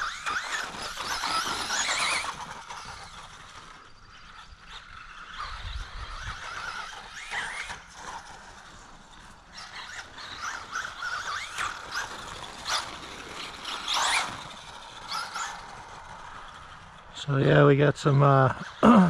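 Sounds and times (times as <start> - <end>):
electric motor whine: 0.0 - 17.7
tire and drivetrain noise: 0.0 - 19.0.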